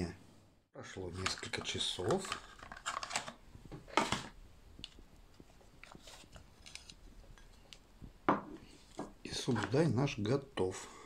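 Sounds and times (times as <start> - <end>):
plastic scraping on plastic: 1.1 - 7.7.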